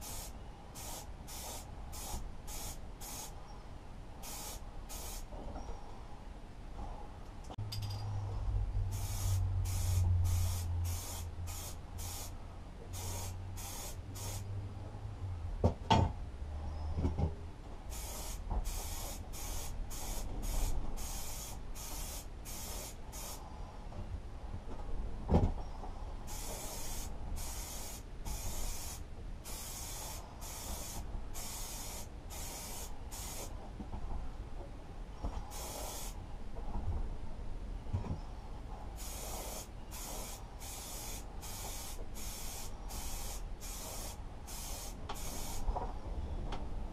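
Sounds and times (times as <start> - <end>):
spray paint can spraying: 0.0 - 3.3, 4.2 - 5.3, 8.9 - 14.4, 17.9 - 23.4, 26.3 - 33.5, 35.5 - 36.2, 39.0 - 45.7.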